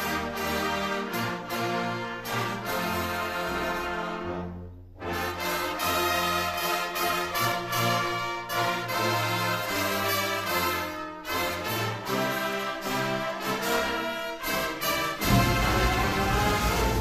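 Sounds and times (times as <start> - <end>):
orchestral music with brass: 0.0 - 17.0.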